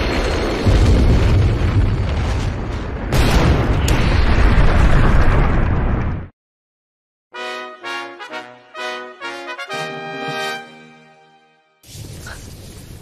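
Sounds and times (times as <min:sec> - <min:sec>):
explosive magic blast rumble: 0:00.0 - 0:06.3.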